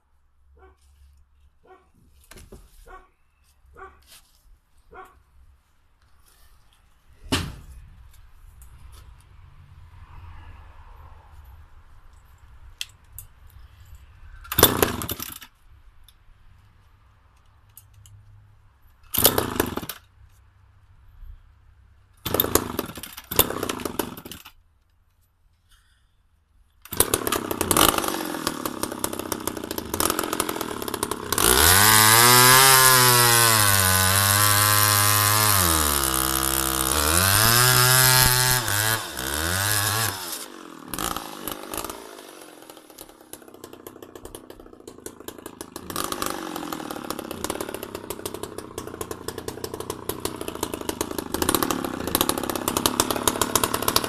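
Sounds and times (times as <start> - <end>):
chainsaw starting and revving: 14.5 - 15.5, 19.1 - 20.1, 22.2 - 24.6, 26.9 - 54.0.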